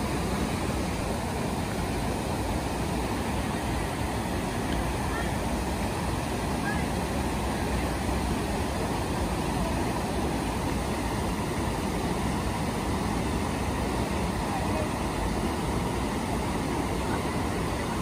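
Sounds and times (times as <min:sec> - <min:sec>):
river water rushing over weir: 0:00.0 - 0:18.0.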